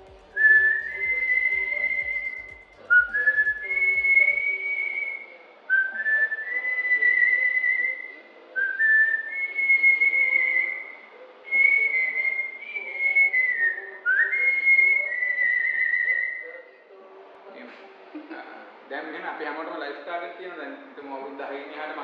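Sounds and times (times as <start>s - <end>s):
woman whistling a tune: 0.3s - 10.8s, 11.5s - 16.6s.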